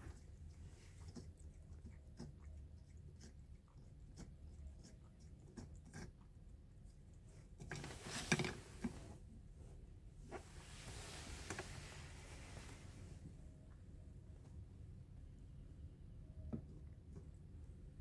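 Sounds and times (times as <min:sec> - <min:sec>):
rustling noise: 0:07.6 - 0:13.4.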